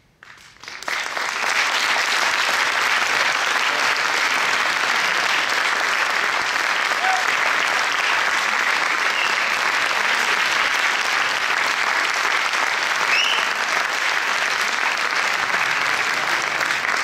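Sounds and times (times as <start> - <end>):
audience applauding: 0.2 - 17.0.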